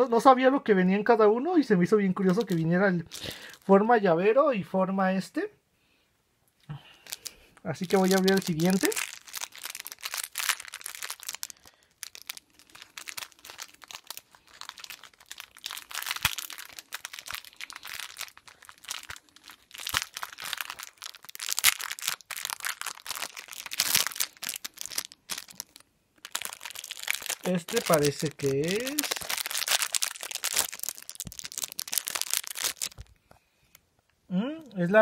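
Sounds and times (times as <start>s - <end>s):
plastic bag crinkling: 2.3s - 3.7s, 7.0s - 33.2s.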